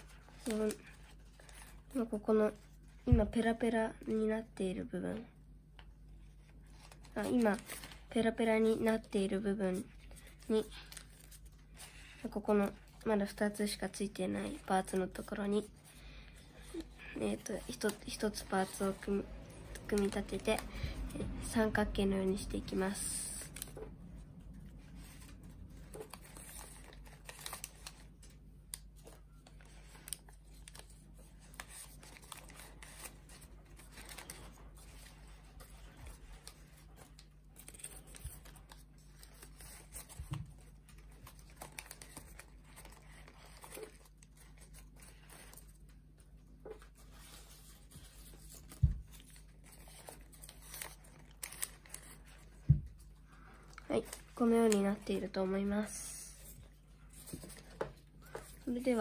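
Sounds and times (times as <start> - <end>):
paper rustling and crinkling: 0.0 - 3.6, 6.1 - 59.0
small paper clicks: 25.8 - 52.6.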